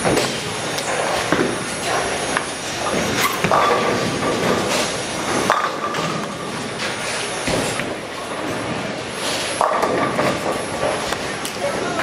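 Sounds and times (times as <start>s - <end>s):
bowling pins clattering: 0.0s - 8.9s, 9.6s - 11.2s
bowling ball rolling: 0.0s - 11.3s.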